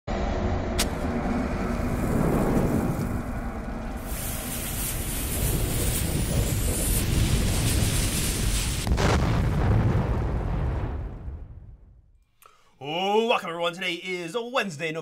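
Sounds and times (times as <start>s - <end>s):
low rumble: 0.1s - 12.2s
bomb fuse hissing and crackling: 1.6s - 10.5s.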